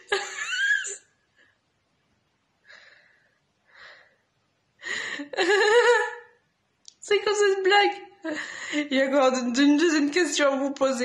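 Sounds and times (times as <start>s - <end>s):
woman laughing: 0.0s - 1.1s, 5.1s - 6.3s.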